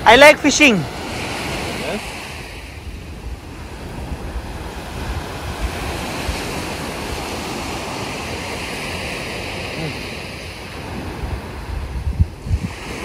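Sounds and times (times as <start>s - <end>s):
small waves breaking on shore: 0.0s - 13.0s
wind buffeting microphone: 0.0s - 13.0s.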